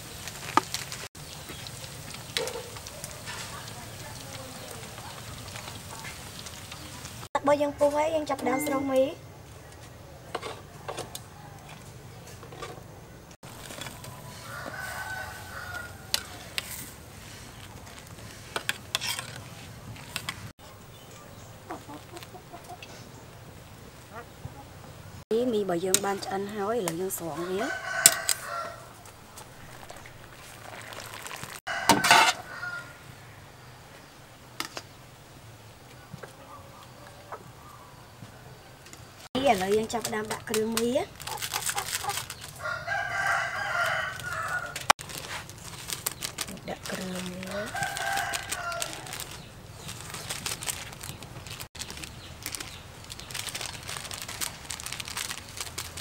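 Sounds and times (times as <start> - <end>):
seasoning pattering on noodles: 0.0 - 7.3, 28.0 - 31.6, 43.6 - 56.0
rooster crowing: 14.2 - 16.5, 27.4 - 29.1, 31.7 - 33.4, 42.6 - 44.9, 47.4 - 49.3
plastic sachets crinkling: 27.7 - 31.7, 39.4 - 56.0.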